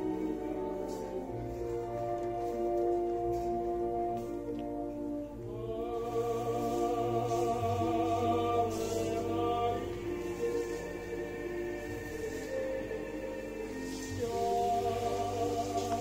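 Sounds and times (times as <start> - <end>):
orchestra playing: 0.0 - 16.0
operatic singing: 5.2 - 16.0.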